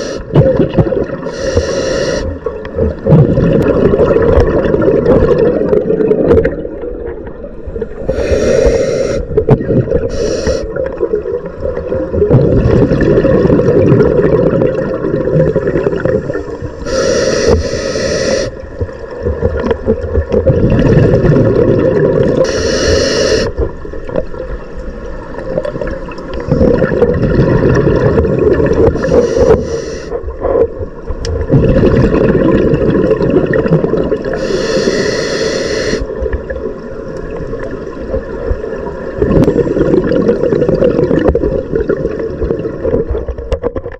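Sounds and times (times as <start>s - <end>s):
regulator bubbles gurgling: 0.0s - 43.9s
short breathing hisses: 1.3s - 2.3s, 8.1s - 9.3s, 10.1s - 10.7s, 16.8s - 18.5s, 22.5s - 23.5s, 29.0s - 30.2s, 34.4s - 36.0s.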